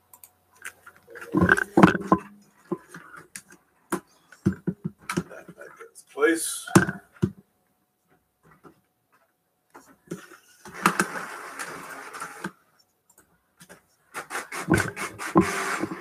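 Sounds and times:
printer mechanical rush: 14.2 - 16.0.

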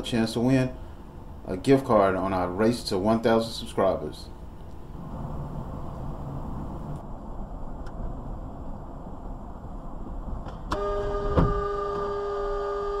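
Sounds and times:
car road and engine noise: 4.3 - 12.4.

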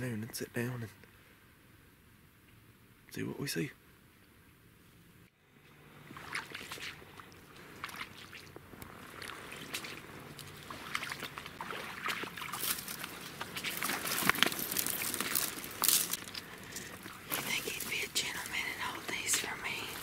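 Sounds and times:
crunching and rustling leaves: 5.9 - 20.0
footsteps splashing through water: 6.0 - 20.0.

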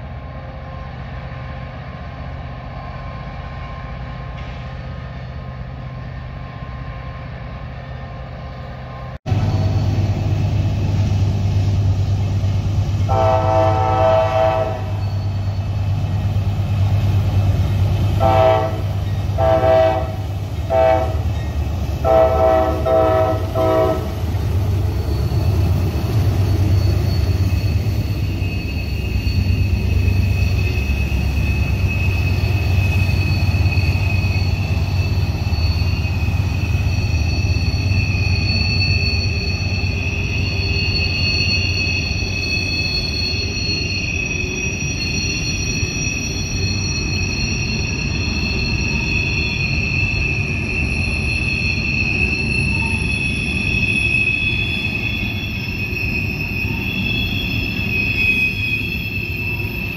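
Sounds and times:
diesel locomotives rumbling: 0.0 - 59.9
wheels squealing on rails: 0.0 - 59.9
train horn blasts: 13.1 - 15.0, 18.2 - 21.4, 22.0 - 24.2.

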